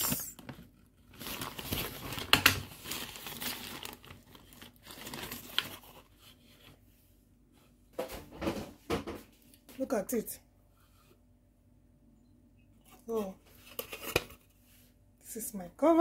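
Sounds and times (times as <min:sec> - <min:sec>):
baking paper crinkling: 0:00.0 - 0:06.8.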